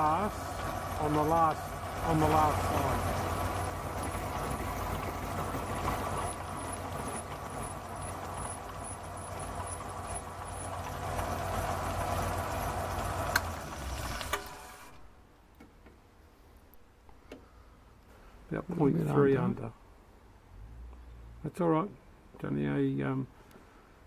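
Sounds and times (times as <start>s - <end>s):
machine running down: 0.0s - 15.0s
milling machine motor hum: 0.0s - 15.1s.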